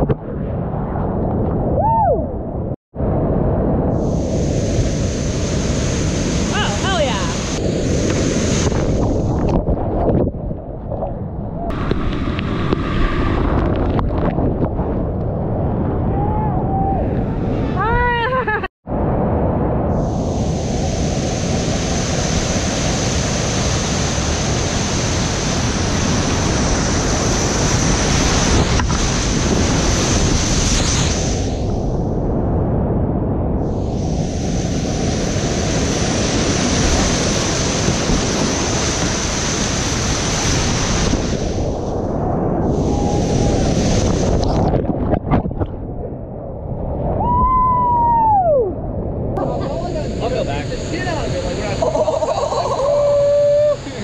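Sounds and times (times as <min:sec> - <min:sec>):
whitewater rushing: 0:04.3 - 0:09.1.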